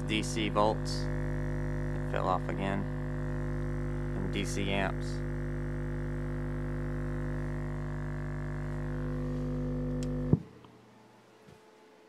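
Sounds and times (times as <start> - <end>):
subwoofer test tone: 0.0 - 10.6.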